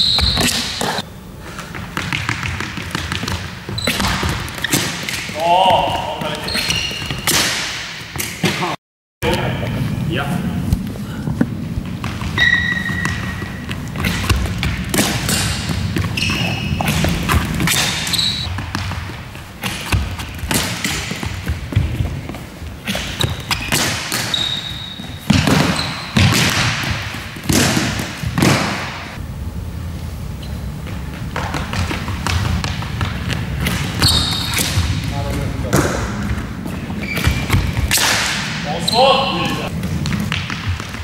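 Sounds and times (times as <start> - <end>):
ball hitting goal and boards: 0.0 - 1.0, 1.6 - 9.4, 11.8 - 29.2, 31.0 - 41.0
short high squeaks: 6.4 - 7.4, 12.4 - 13.4, 15.3 - 17.0, 17.8 - 18.5, 23.0 - 26.2.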